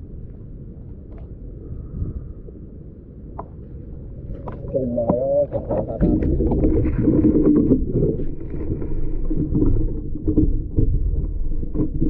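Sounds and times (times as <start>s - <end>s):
low handling rumble: 3.8s - 12.0s.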